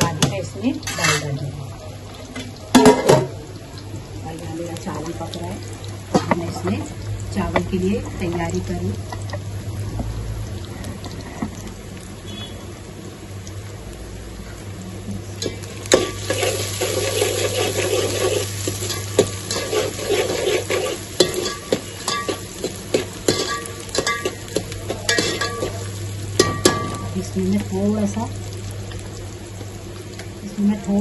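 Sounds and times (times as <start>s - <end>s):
onions sizzling in a pot: 0.0s - 31.0s
spoon scraping a metal pot: 0.8s - 1.4s, 16.0s - 22.4s.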